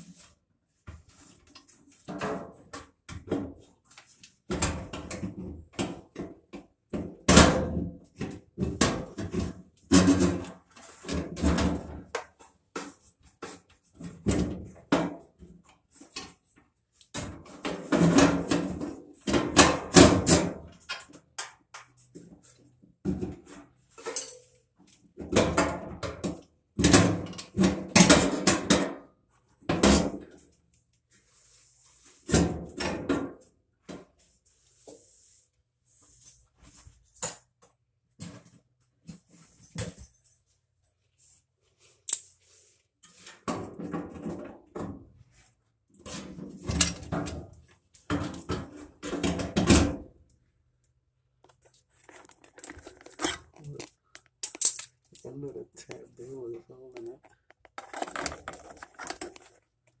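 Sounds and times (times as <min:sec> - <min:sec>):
metal parts clattering and clicking: 0:52.0 - 0:55.3, 0:57.2 - 1:00.0.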